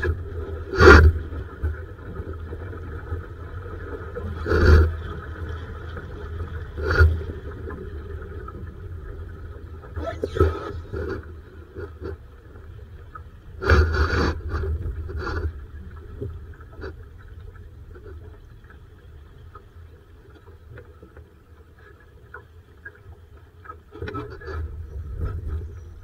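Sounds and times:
water rushing against hull: 0.0 - 26.0.

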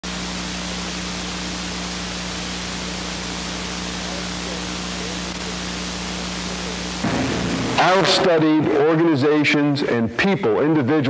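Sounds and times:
tape hiss: 0.0 - 10.9
low electrical hum: 0.0 - 11.0.

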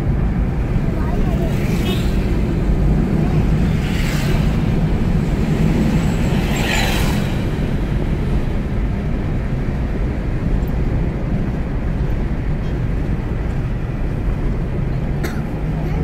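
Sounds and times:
road and engine rumble in car: 0.0 - 16.0
truck passing whoosh: 1.7 - 10.1.

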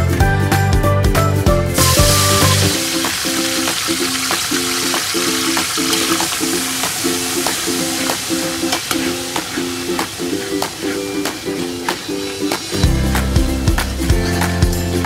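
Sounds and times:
rhythmic background music: 0.0 - 15.0
paste sizzling in hot oil: 1.8 - 12.8.

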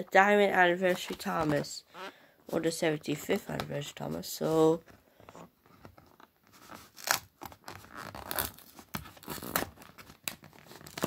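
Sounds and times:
plastic packaging crackling and tearing: 6.2 - 11.0.

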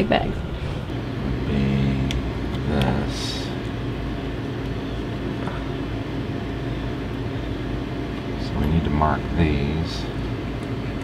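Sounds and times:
low mechanical rumble: 0.0 - 11.0.

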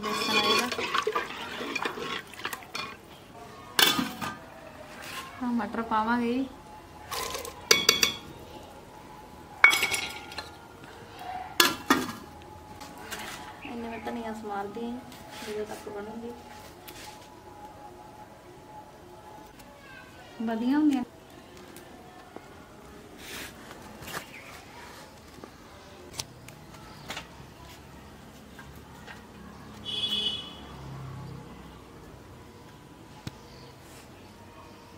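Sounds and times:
steel plate clanking on pot: 0.0 - 3.0
steel utensils clinking: 0.0 - 3.0, 7.1 - 8.3, 9.6 - 10.6.

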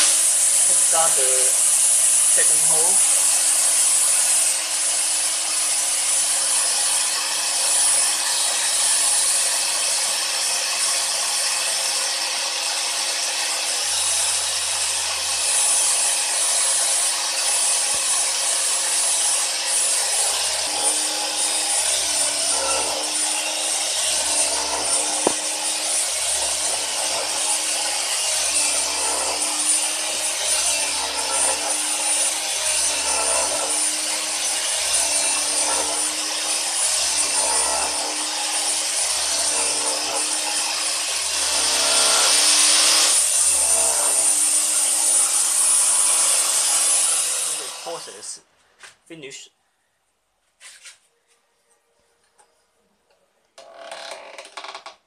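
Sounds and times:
cutter milling metal: 0.0 - 48.2
grinder high-pitched whine: 0.0 - 48.3.

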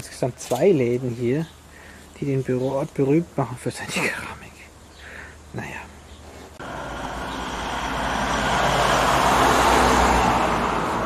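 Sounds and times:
vehicle driving past: 6.6 - 11.0.

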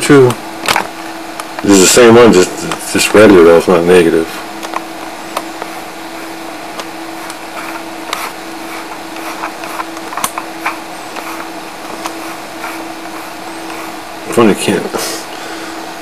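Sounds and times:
low machine hum with hiss: 0.0 - 16.0.

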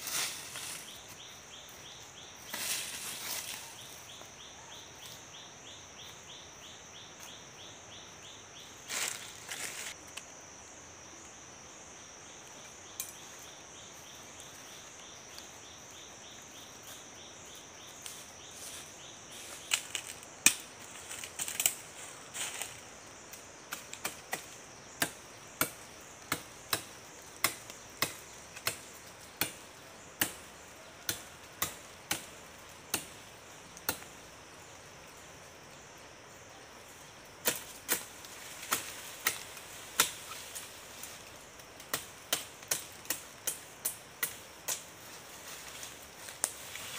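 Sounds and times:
high insect drone: 0.0 - 46.9.

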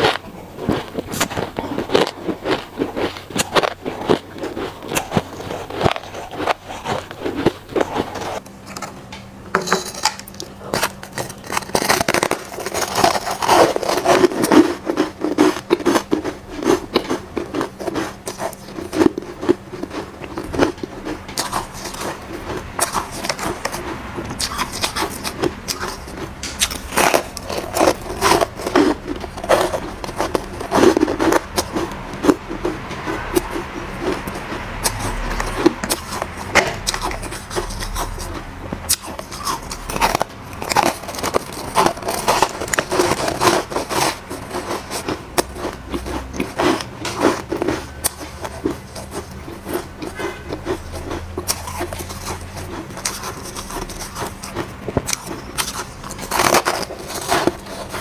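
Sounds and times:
ice crunching while chewed: 0.0 - 8.4, 10.1 - 58.0
spoon scraping shaved ice: 9.6 - 58.0.

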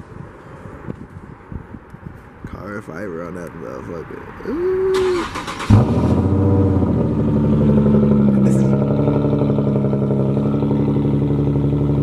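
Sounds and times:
car engine revving and idling: 4.5 - 12.0.

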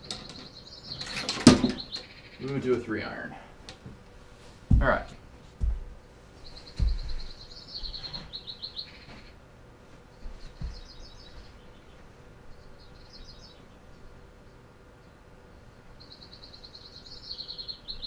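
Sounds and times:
bird chirping in trills: 0.0 - 3.2, 6.4 - 9.4, 10.1 - 18.0
soft low thumps: 4.6 - 8.4, 10.2 - 11.8.

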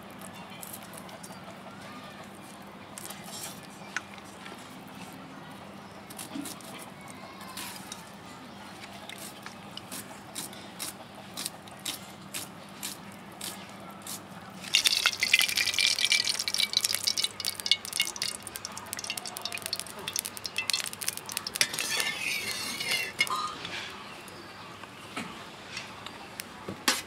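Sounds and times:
hot oil sizzling and popping: 14.6 - 23.5.

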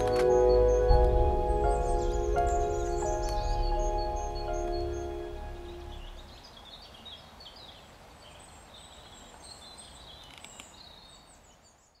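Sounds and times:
faint outdoor background noise: 0.0 - 12.0
small birds chirping and singing: 0.0 - 12.0.

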